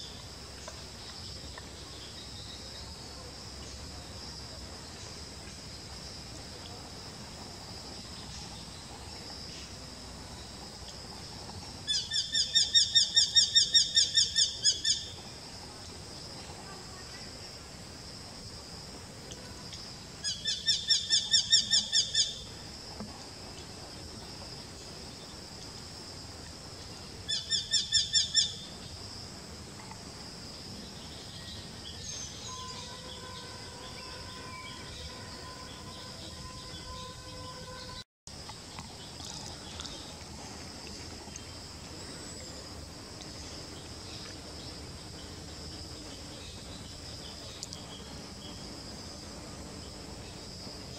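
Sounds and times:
steady high hiss: 0.0 - 50.9.

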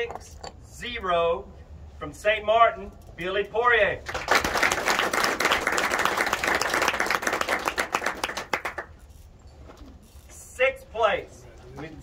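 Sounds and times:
audience clapping: 4.1 - 8.9.

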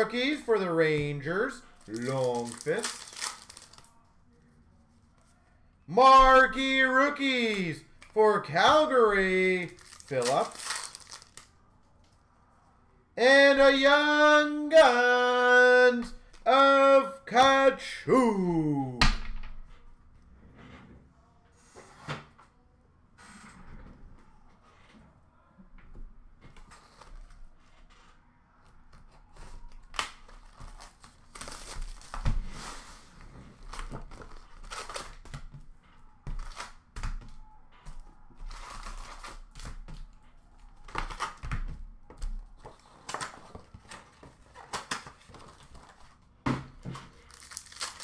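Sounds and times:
packaging crinkling and tearing: 1.7 - 4.0, 9.6 - 11.5, 29.9 - 32.2, 33.6 - 35.3, 47.0 - 48.0.

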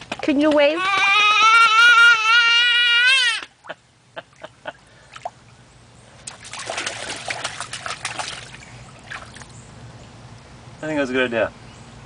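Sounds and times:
toddler squealing: 0.7 - 3.5
water splashing: 6.2 - 9.6.

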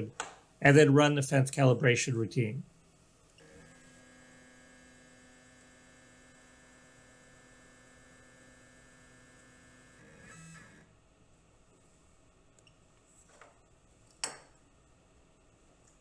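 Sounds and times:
faint motor whine: 2.7 - 13.7.

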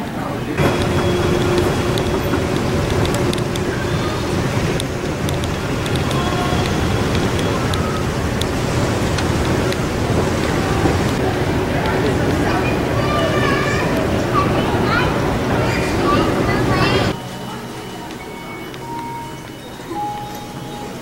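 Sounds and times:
moving walkway rumble and hiss: 0.0 - 21.0.

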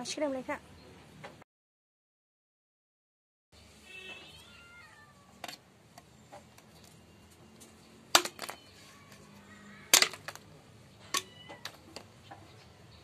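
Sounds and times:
machete chopping bamboo: 8.1 - 8.6, 9.9 - 10.4.

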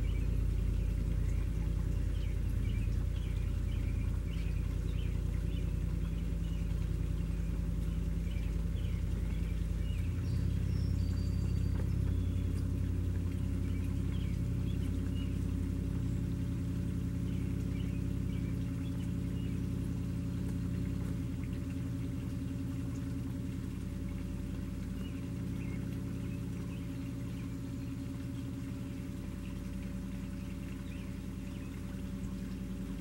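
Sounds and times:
bird chirps: 0.0 - 12.7
engine humming: 0.0 - 33.0.

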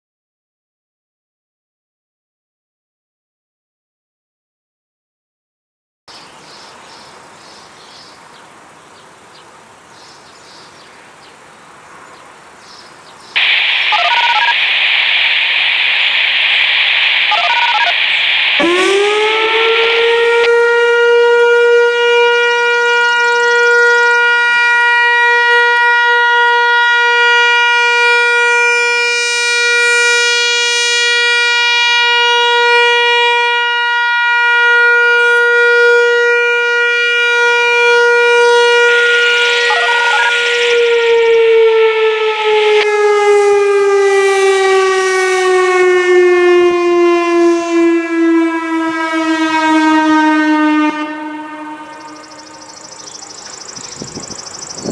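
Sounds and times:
outdoor warning siren tone: 13.4 - 54.9.

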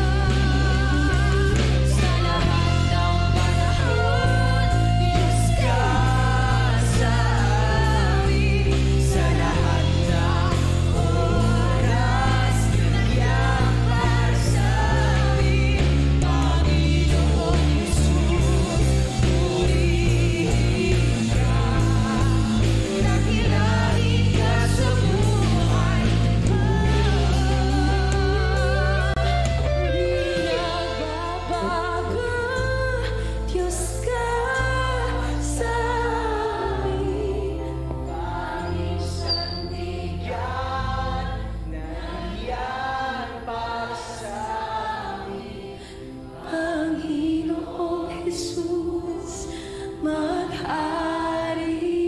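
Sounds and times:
drums and guitars: 0.0 - 32.0
backing singers: 0.0 - 52.0
woman singing lead: 0.0 - 52.0.

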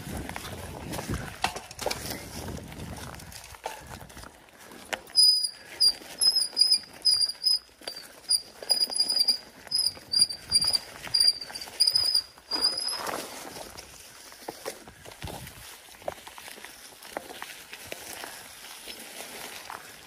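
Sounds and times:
bike disc brakes squealing: 5.1 - 13.3.

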